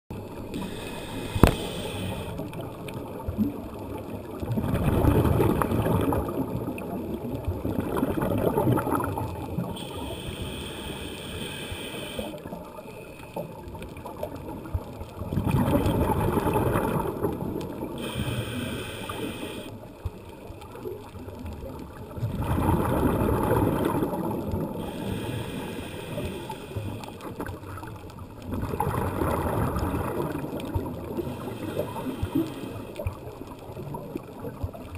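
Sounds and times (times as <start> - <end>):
scuba regulator hiss: 0.6 - 2.4, 9.8 - 12.4, 18.0 - 19.8, 24.8 - 27.1, 31.2 - 32.9
bubbling rush of exhaled air: 22.2 - 26.5, 28.5 - 32.8.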